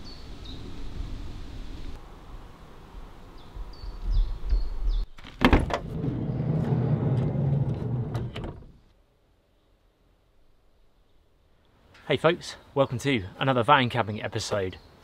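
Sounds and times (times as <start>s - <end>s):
bird chirps: 3.4s - 5.2s.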